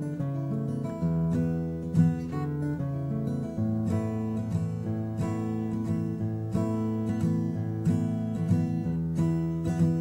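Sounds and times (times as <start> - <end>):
acoustic guitar blues chords: 0.0 - 10.0.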